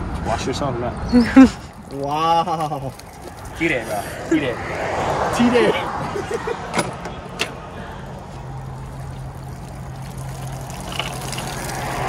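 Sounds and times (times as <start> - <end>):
shower water pouring and splashing: 1.6 - 5.3, 7.9 - 12.0.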